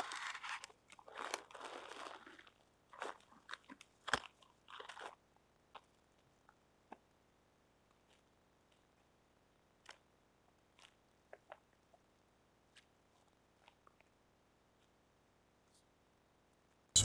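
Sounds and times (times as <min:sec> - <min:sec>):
packaging rustling: 0:00.0 - 0:03.1.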